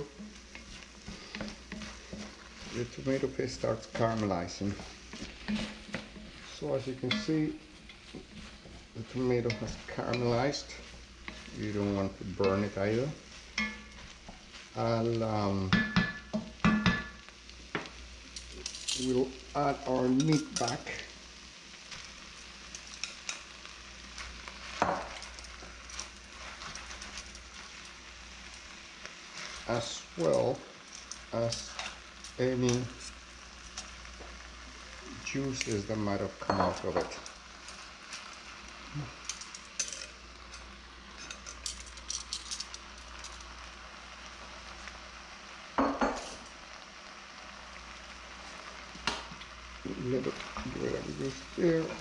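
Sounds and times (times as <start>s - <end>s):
vegetables sizzling in a pot: 0.0s - 52.0s
metal tongs clicking on a pot: 22.7s - 23.4s, 39.2s - 40.6s, 41.2s - 43.4s
metal tongs clicking on pot: 39.2s - 40.6s.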